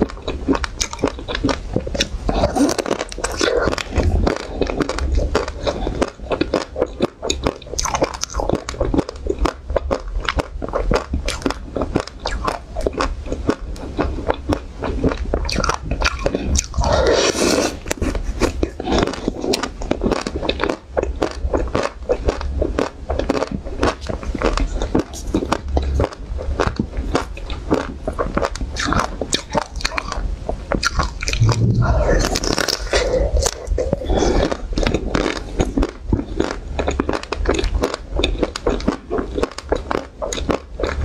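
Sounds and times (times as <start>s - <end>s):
smeared noise: 0.0s - 9.0s, 24.1s - 36.8s
chewing: 0.0s - 41.0s.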